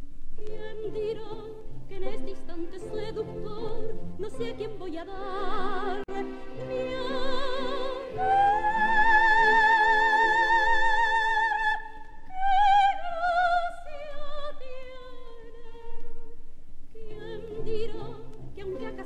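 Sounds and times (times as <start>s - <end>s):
soprano singing: 0.3s - 19.0s
chamber orchestra: 0.8s - 11.8s.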